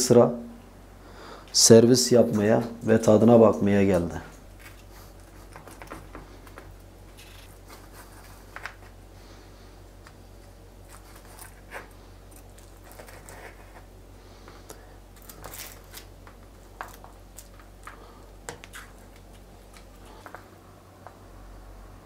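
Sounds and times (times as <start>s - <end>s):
flaky pastry crackling: 10.0s - 20.3s.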